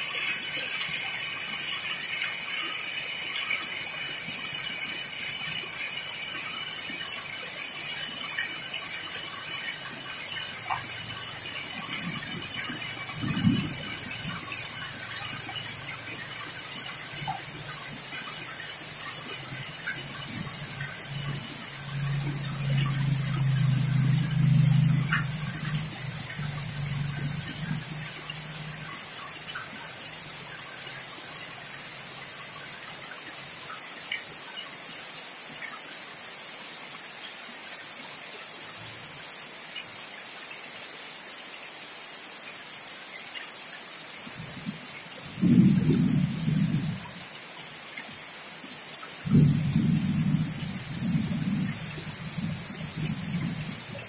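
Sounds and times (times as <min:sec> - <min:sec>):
heavy rain falling: 0:00.0 - 0:54.0
thunder rumbling: 0:11.7 - 0:15.1, 0:45.3 - 0:47.0, 0:49.2 - 0:53.9.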